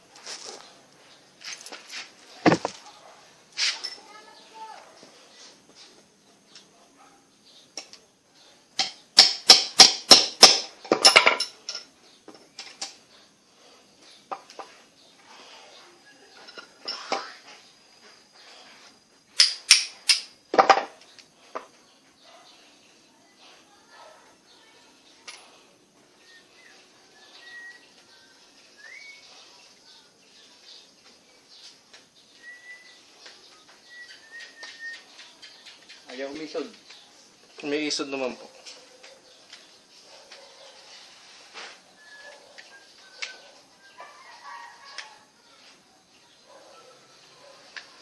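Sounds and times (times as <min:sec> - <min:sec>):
metal parts clicking and tapping: 0:08.8 - 0:13.0, 0:19.4 - 0:20.8
faint high chirps: 0:21.1 - 0:37.8, 0:38.6 - 0:48.0.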